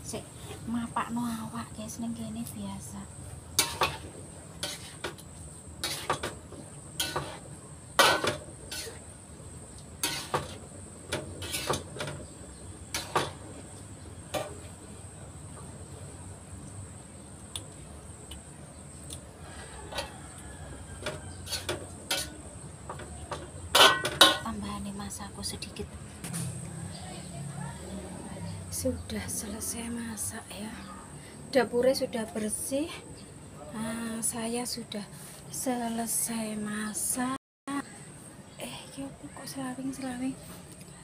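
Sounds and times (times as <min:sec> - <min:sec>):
metal spatula scraping a pan: 0:03.6 - 0:05.2, 0:05.8 - 0:09.1, 0:10.0 - 0:12.2, 0:12.9 - 0:13.5, 0:19.5 - 0:20.2, 0:20.9 - 0:22.5, 0:23.3 - 0:24.5.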